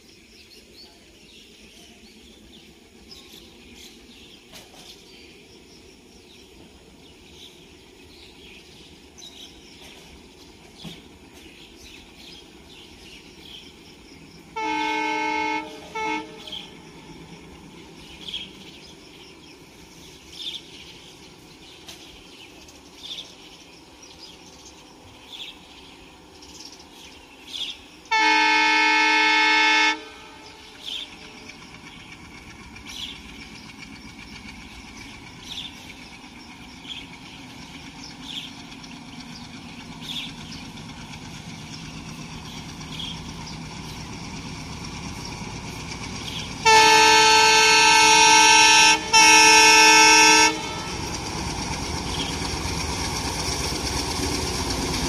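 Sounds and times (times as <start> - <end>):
diesel locomotive horn blasts: 14.4 - 17.6, 27.6 - 31.6, 42.9 - 51.7.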